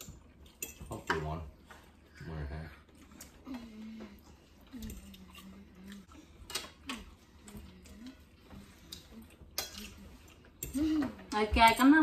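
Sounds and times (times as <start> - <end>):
soft low hums: 1.5 - 11.4
forks scraping on plates: 6.4 - 12.0.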